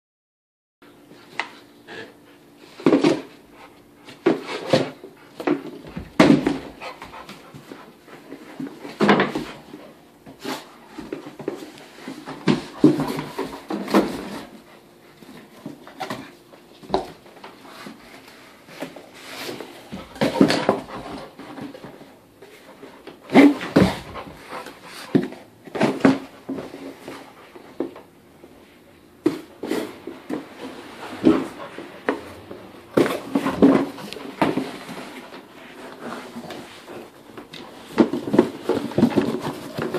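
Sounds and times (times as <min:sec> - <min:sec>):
dog pushing cardboard box: 0:04.1 - 0:28.1, 0:29.2 - 0:39.9
dog panting: 0:23.8 - 0:25.3
cardboard box scraping on rug: 0:29.5 - 0:39.9.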